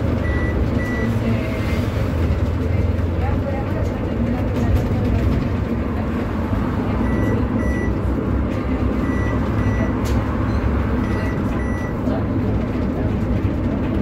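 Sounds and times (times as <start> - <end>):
bus road and tyre rumble: 0.0 - 14.0
short high beeps: 7.0 - 8.0, 9.0 - 12.0.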